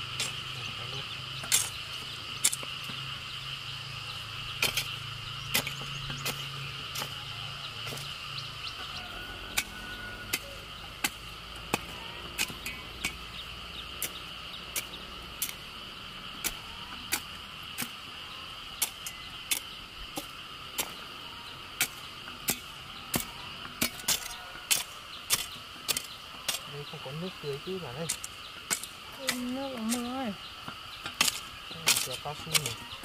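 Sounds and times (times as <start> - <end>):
high-pitched insect chirring: 0.0 - 33.0
sharp ticks: 10.4 - 15.7.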